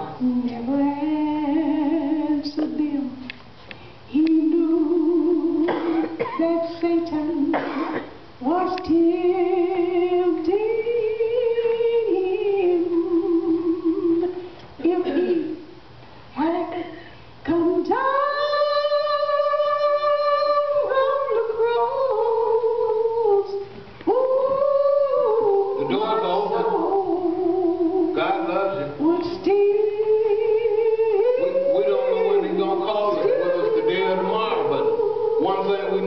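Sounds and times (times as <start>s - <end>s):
woman singing: 0.0s - 3.4s, 4.1s - 15.7s, 16.4s - 28.2s, 29.0s - 36.0s.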